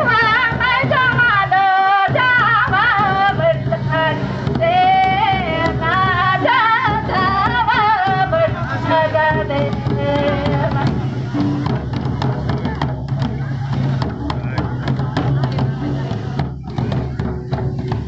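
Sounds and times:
instrumental accompaniment: 0.0 - 18.0.

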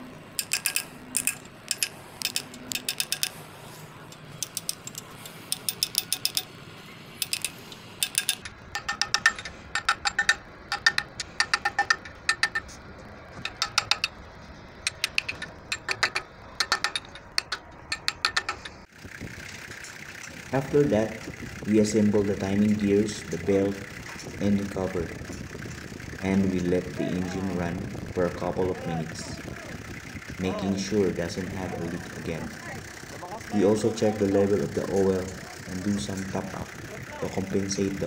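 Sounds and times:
small hammer tapping metal: 0.4 - 3.4, 4.4 - 6.5, 7.2 - 12.8, 13.4 - 14.2, 14.9 - 18.8.

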